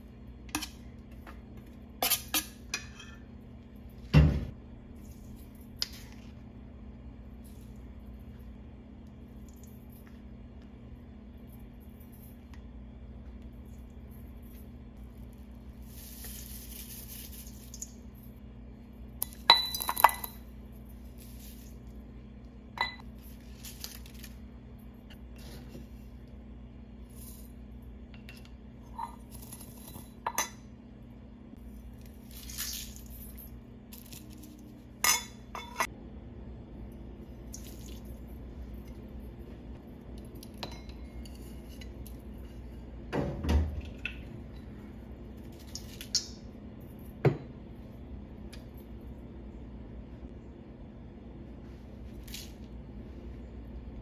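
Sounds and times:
steady low hum: 0.0s - 54.0s
dry spices rustling: 14.3s - 18.5s
spoon clinking metal bowl: 19.2s - 20.5s, 22.8s - 23.1s, 40.5s - 42.2s.

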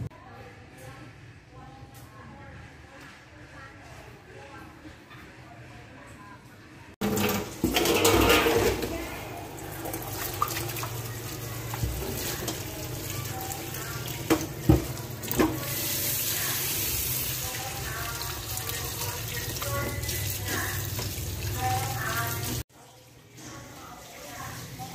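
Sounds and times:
tap water running into basin: 7.0s - 22.6s
hands rinsing cucumbers: 9.6s - 16.0s.

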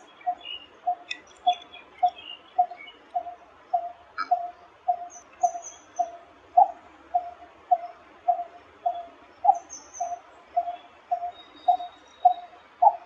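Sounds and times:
bird calling low tuk notes: 0.0s - 13.0s
faint small bird chirps: 0.2s - 3.3s.

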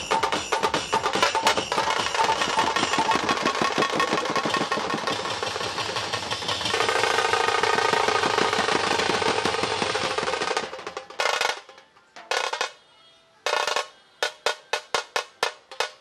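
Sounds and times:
bass drums and snare drums: 0.0s - 11.7s.

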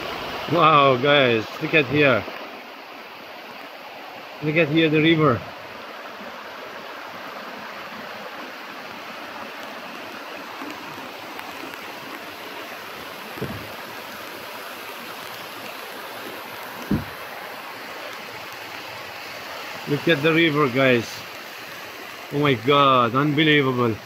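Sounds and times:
river water rushing: 0.0s - 24.0s
brief low thump: 13.4s - 13.7s, 16.8s - 17.2s.

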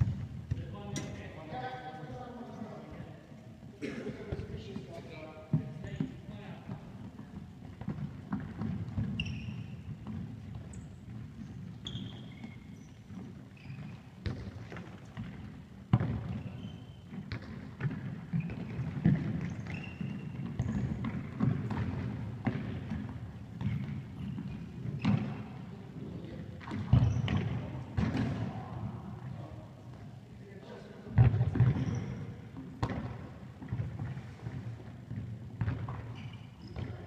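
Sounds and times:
trainers squeaking on floor: 9.0s - 14.2s, 16.3s - 17.3s, 18.3s - 21.4s, 31.7s - 32.5s, 36.0s - 37.0s.

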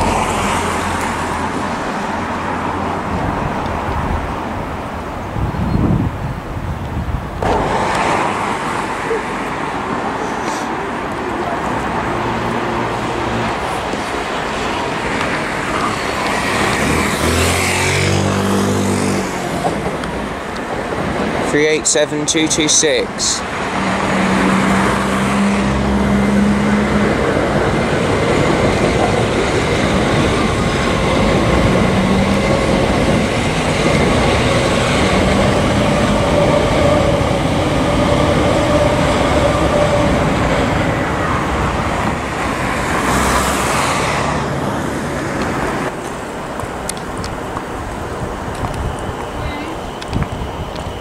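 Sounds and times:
train wheels rumbling on rail: 0.0s - 51.0s
humming tones from train: 5.6s - 6.0s, 19.4s - 42.7s, 46.4s - 51.0s.

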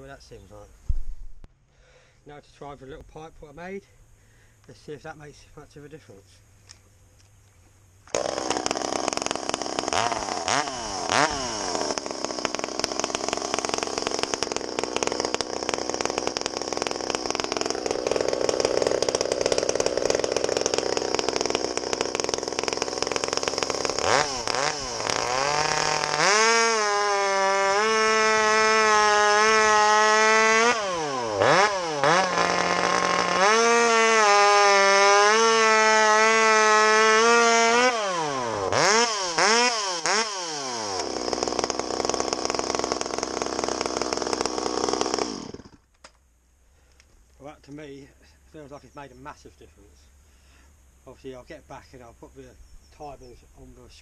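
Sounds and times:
chainsaw cutting log: 8.1s - 46.2s.

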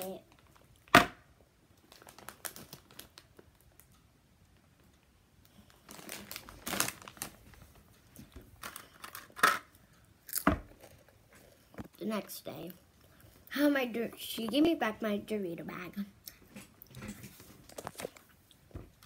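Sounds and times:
chip bag crinkling: 1.8s - 3.9s, 5.6s - 7.8s.

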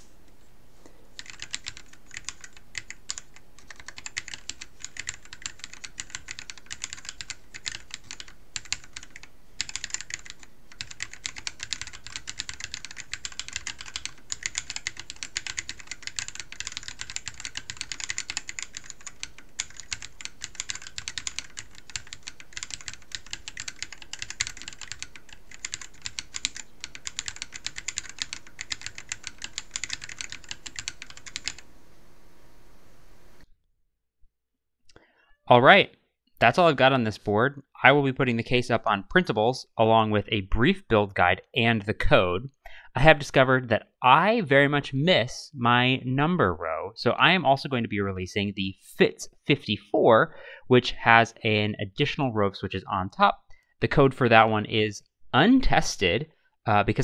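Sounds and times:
fast mechanical keyboard typing: 1.2s - 31.6s.

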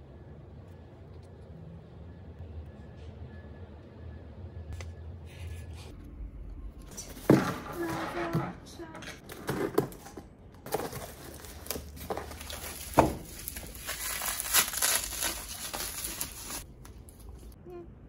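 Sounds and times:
bubble wrap crinkling: 10.7s - 17.6s.

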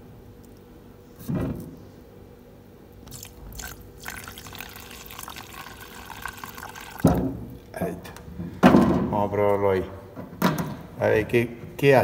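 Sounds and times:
liquid trickling into a cup: 3.1s - 7.2s.

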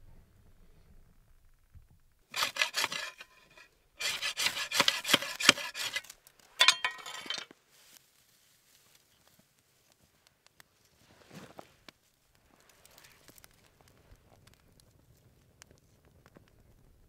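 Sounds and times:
hatchet rasping ferro rod: 2.3s - 7.4s.

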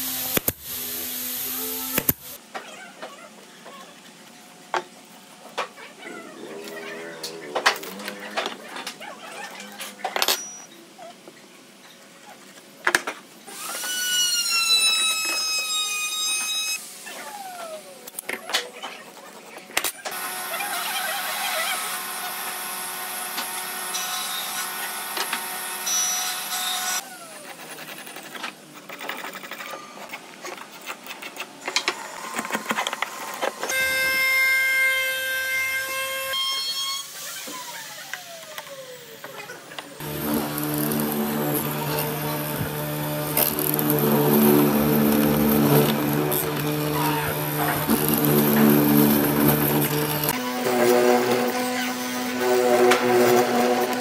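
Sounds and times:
power tools running: 20.1s - 27.4s, 31.8s - 54.0s.

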